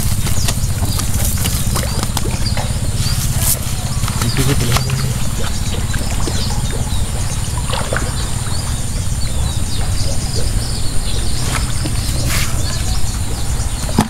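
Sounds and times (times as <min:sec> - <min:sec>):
net and grass rustling: 0:00.0 - 0:07.3, 0:11.4 - 0:13.2
low rumble: 0:00.0 - 0:14.0
small birds chirping: 0:00.0 - 0:14.0.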